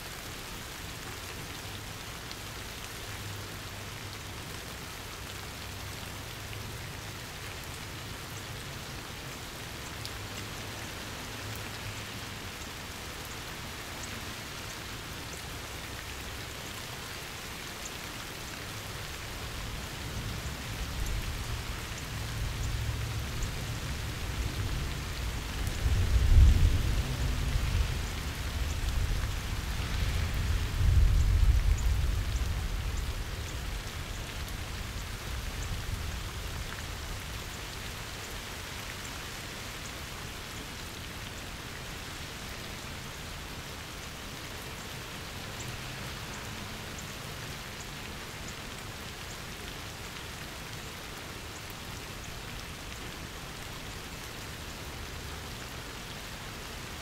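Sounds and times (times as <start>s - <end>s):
steady rain falling: 0.0s - 57.0s
low rumble of thunder: 23.7s - 37.2s.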